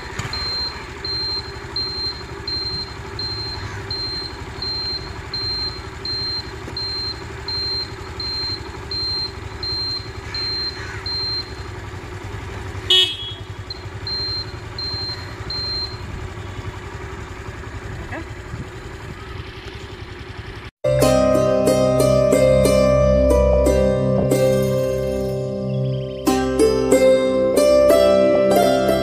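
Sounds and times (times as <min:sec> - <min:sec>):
scooter engine idling: 0:00.0 - 0:29.0
high electronic beep: 0:00.3 - 0:11.6, 0:13.7 - 0:16.0
horn toot: 0:12.8 - 0:13.6.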